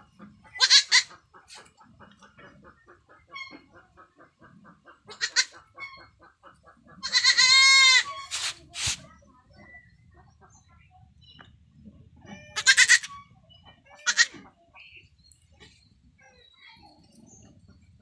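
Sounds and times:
young goat bleating: 0.6s - 1.2s, 5.1s - 5.6s, 7.0s - 8.5s, 12.4s - 13.2s, 14.0s - 14.4s.

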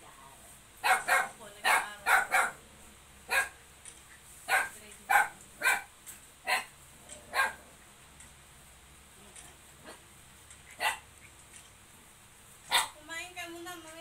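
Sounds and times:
dog barking: 0.8s - 2.6s, 3.3s - 3.6s, 4.5s - 5.9s, 6.5s - 6.7s, 7.3s - 7.6s, 10.8s - 11.0s, 12.7s - 13.0s.

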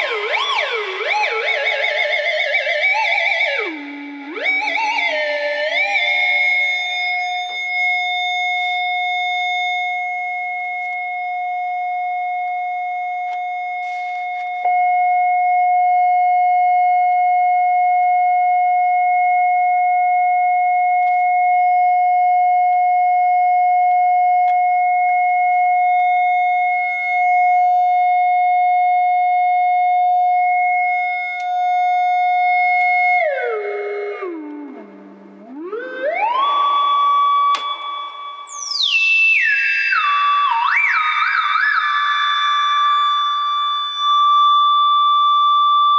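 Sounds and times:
loud electronic tone: 0.0s - 10.8s.

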